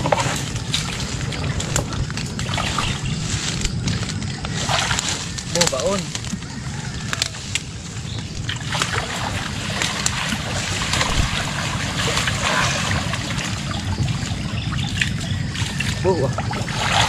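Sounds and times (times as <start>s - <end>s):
steady low rumble: 0.0s - 17.0s
water sloshing and splashing: 0.0s - 17.0s
water dripping: 8.3s - 17.0s.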